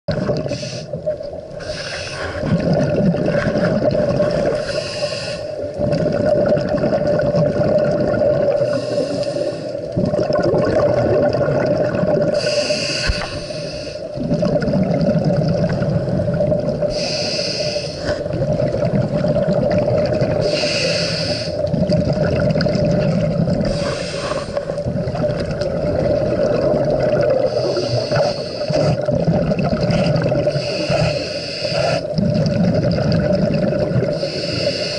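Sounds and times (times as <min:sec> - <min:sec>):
exhaled air bubbling: 0:00.1 - 0:34.9
regulator inhalation hiss: 0:00.5 - 0:01.0, 0:01.6 - 0:02.4, 0:04.5 - 0:05.6, 0:08.6 - 0:09.8, 0:12.4 - 0:14.1, 0:16.9 - 0:18.2, 0:20.4 - 0:21.7, 0:23.7 - 0:24.8, 0:27.5 - 0:29.0, 0:30.5 - 0:32.1, 0:34.1 - 0:34.9.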